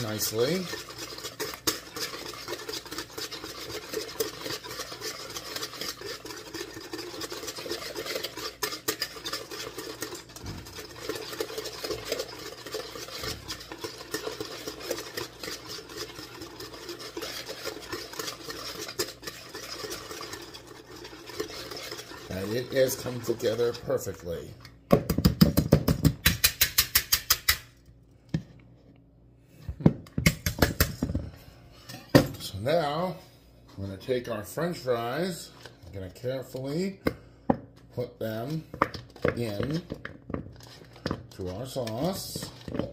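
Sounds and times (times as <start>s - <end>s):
whisk clicking in plastic bowl: 0.0s - 23.8s, 38.3s - 42.9s.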